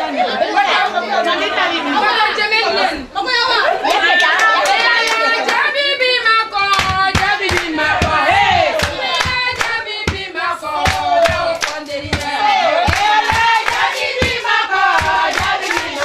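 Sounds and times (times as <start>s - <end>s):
women singing together: 0.0s - 16.0s
hand clapping: 6.7s - 16.0s.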